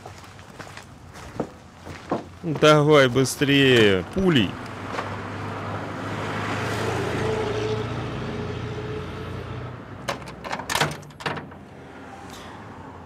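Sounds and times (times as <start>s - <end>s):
metal gate clanking and rattling: 10.0s - 11.8s.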